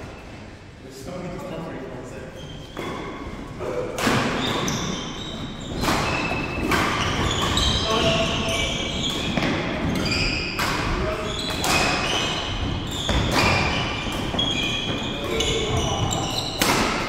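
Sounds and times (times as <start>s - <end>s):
shoes squeaking on wooden floor: 4.4s - 16.6s.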